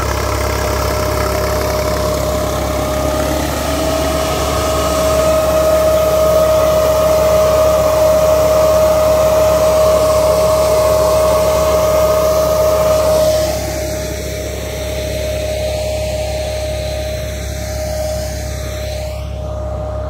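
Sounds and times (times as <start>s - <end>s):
tractor engine running: 0.0s - 20.0s
vacuum fan whining: 0.0s - 20.0s.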